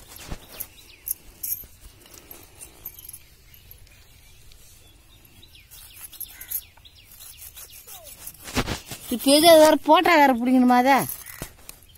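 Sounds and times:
netting rustling: 0:07.4 - 0:11.9.

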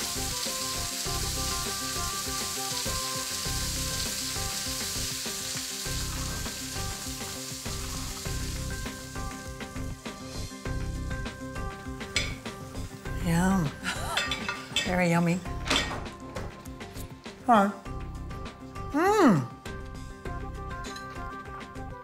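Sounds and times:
meat sizzling in oil: 0:00.0 - 0:16.8
utensils clinking: 0:13.9 - 0:16.2, 0:20.8 - 0:21.3.

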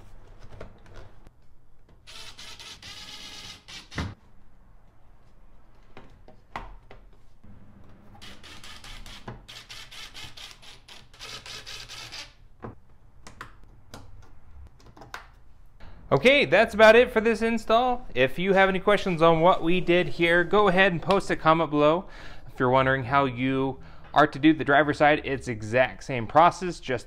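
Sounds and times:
cordless drill whirring: 0:02.1 - 0:04.2.

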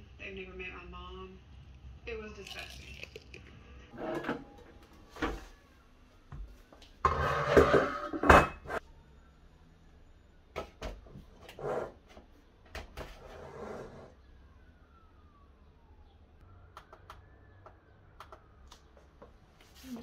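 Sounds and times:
kitchen items clattering: 0:03.9 - 0:05.5, 0:07.0 - 0:08.8.

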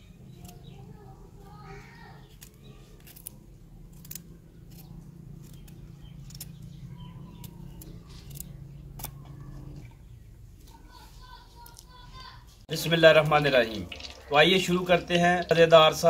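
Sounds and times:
knife snipping cauliflower stems: 0:00.3 - 0:00.9, 0:02.2 - 0:09.6
steady low hum: 0:03.0 - 0:10.6.

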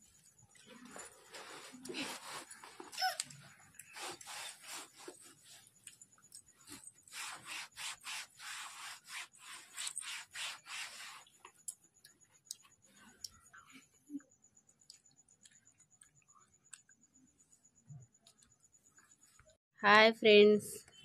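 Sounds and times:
faint scratchy rubbing strokes: 0:03.9 - 0:05.7, 0:06.6 - 0:11.4.

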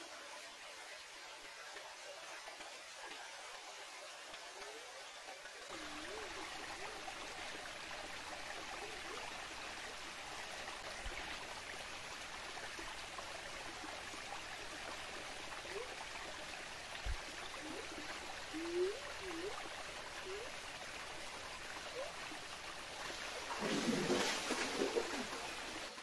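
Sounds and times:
waterfall splashing into pool: 0:05.7 - 0:26.0.

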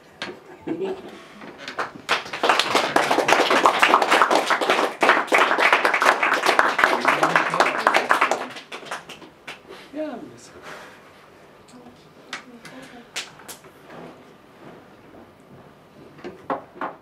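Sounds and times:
hands clapping: 0:01.7 - 0:09.7, 0:12.3 - 0:13.7.

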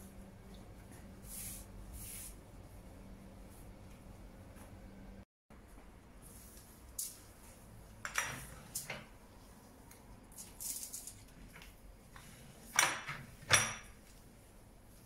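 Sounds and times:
cloth wiping countertop: 0:00.9 - 0:02.8.

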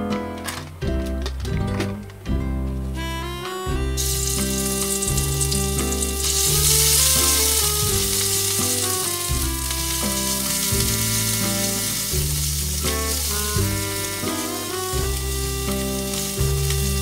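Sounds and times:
background music with low notes: 0:00.0 - 0:17.0
spice paste sizzling in oil: 0:04.0 - 0:17.0.

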